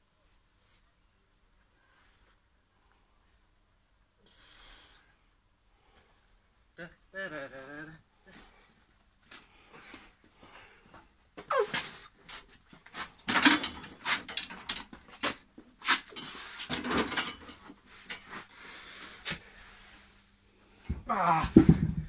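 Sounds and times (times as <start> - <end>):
wooden log knocking and scraping: 21.0 - 22.0.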